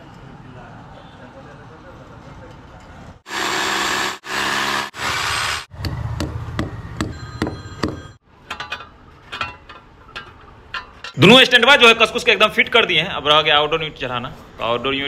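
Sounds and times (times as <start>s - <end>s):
hammer drill boring into masonry: 3.3s - 5.7s
ringing hammer blows: 5.8s - 8.2s.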